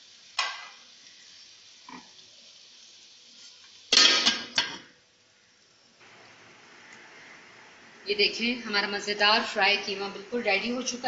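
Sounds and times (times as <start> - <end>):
metal lid clanking on pot: 3.9 - 4.9.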